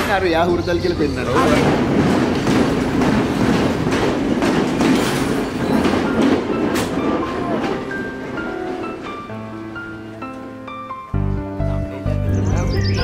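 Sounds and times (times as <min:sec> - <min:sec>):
train wheels clicking over rail joints: 0:01.4 - 0:09.2.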